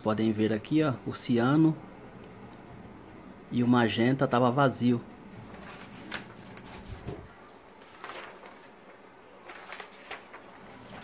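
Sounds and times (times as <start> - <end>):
paper sheets rustling: 5.3 - 11.0.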